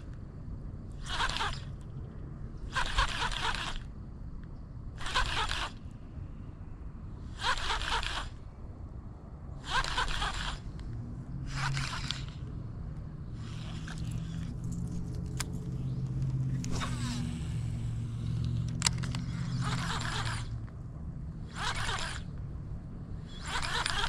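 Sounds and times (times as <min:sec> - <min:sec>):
vehicle engine humming: 0:08.3 - 0:24.0
sharp clicks: 0:18.2 - 0:20.8.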